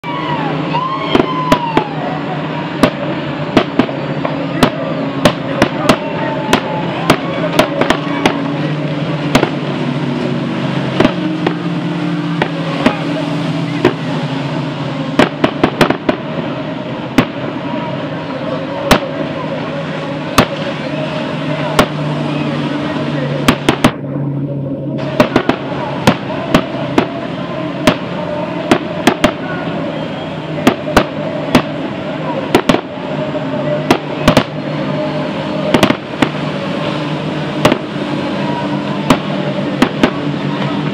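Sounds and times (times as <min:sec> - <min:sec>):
outboard motors droning: 0:00.0 - 0:40.9
firecracker bangs: 0:02.7 - 0:08.6, 0:09.2 - 0:09.7, 0:10.9 - 0:11.6, 0:15.1 - 0:16.5, 0:17.1 - 0:17.5, 0:18.9 - 0:19.2, 0:20.3 - 0:20.7, 0:21.7 - 0:22.0, 0:23.4 - 0:24.0, 0:25.0 - 0:29.5, 0:30.6 - 0:31.9, 0:32.5 - 0:33.0, 0:33.8 - 0:34.6, 0:35.7 - 0:36.6, 0:37.6 - 0:38.0, 0:39.0 - 0:40.4.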